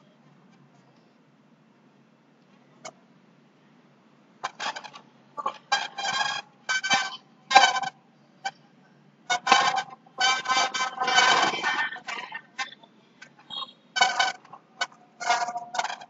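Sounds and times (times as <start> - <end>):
distorted voice on call: 10.4 - 12.9.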